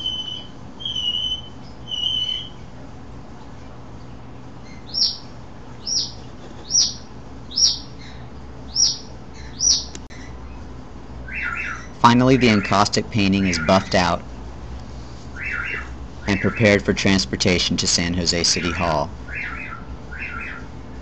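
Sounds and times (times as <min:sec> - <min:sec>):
bird chirps sliding downward: 0:00.0 - 0:02.6.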